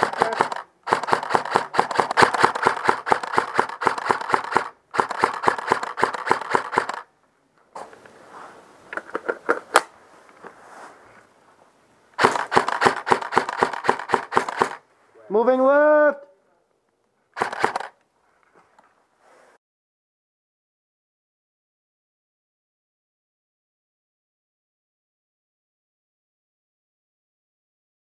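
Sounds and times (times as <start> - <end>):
airsoft rifle firing full auto: 0.0 - 7.1, 12.2 - 14.8, 17.4 - 18.0
scattered clicks: 0.0 - 7.1, 12.2 - 14.8, 17.4 - 18.1
rustling: 0.0 - 15.2.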